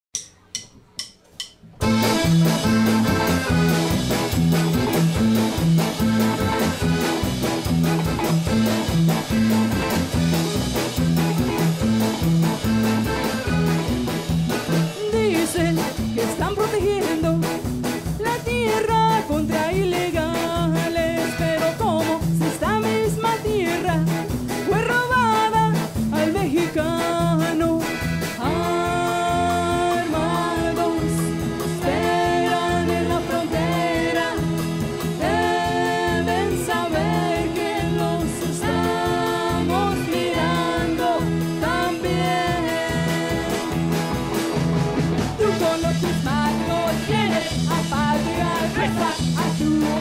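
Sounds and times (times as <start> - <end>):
person singing: 14.9 - 17.5, 18.2 - 44.0, 45.4 - 50.0
song with steady beat: 28.2 - 50.0.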